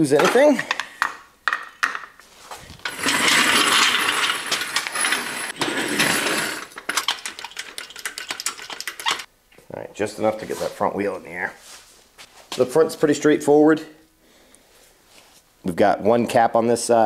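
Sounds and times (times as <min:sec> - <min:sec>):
metal lift scraping on concrete: 0:02.5 - 0:09.3
metal clicks and clanks: 0:02.8 - 0:09.3.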